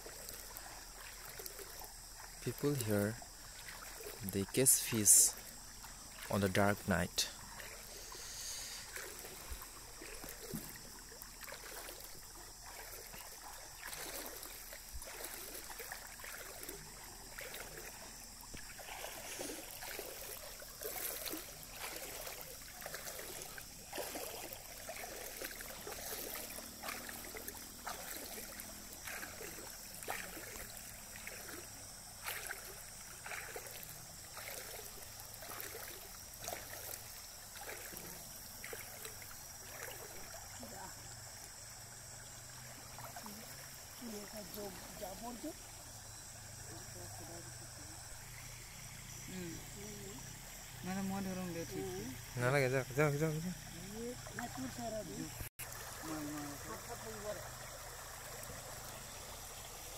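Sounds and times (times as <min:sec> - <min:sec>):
water splashing and sloshing: 0:00.0 - 0:59.9.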